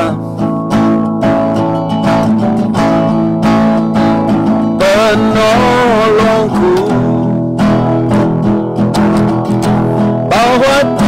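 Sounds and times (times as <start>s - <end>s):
person singing: 0.0s - 0.9s, 1.6s - 8.4s, 9.2s - 11.0s
acoustic guitar strumming chords: 0.0s - 11.0s.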